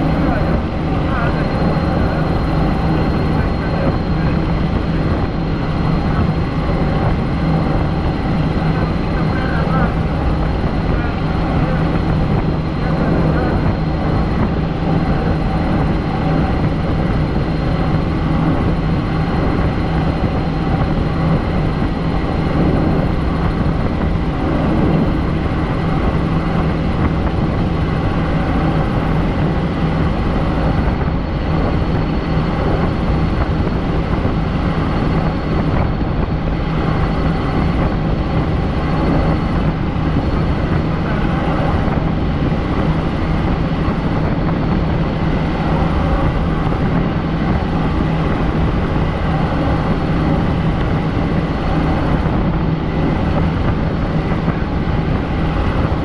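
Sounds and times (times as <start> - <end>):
faint high whine: 0.0 - 44.3
helicopter rotor and engine drone: 0.0 - 56.0.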